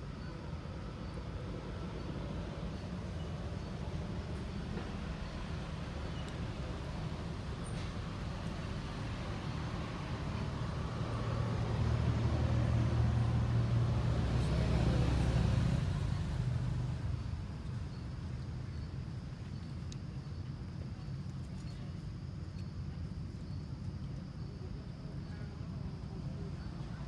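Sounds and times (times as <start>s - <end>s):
vehicle engine rumble passing: 0.0s - 19.9s
outdoor background noise: 0.0s - 27.0s.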